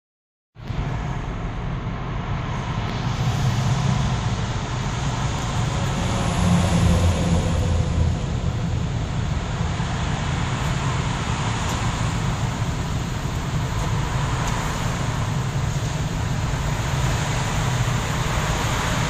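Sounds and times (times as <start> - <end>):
traffic noise inside car: 0.6 - 19.0.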